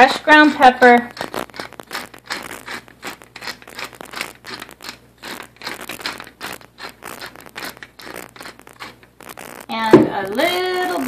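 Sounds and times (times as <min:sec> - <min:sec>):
pepper mill grinding: 0:00.0 - 0:11.0.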